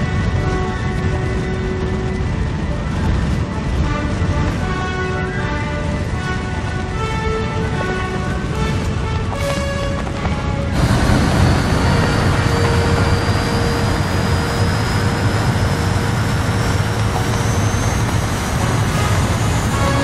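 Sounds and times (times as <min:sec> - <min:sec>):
high jet engine whine: 0:00.0 - 0:20.0
jet engine roar: 0:00.0 - 0:20.0.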